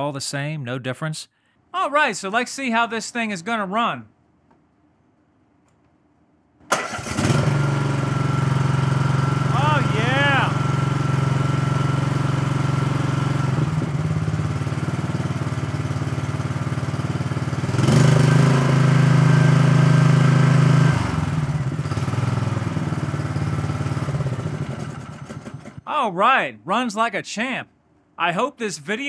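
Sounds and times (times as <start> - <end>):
mower engine running: 6.7 - 25.8.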